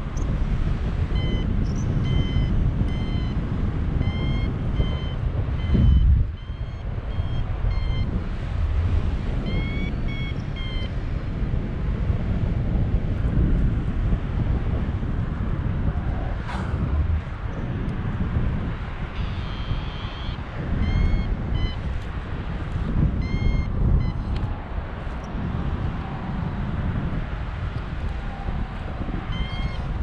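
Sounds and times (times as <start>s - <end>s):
wind noise on microphone: 0.0s - 30.0s
variometer beeping: 4.0s - 8.2s, 9.5s - 11.0s, 19.2s - 22.0s, 23.2s - 24.2s.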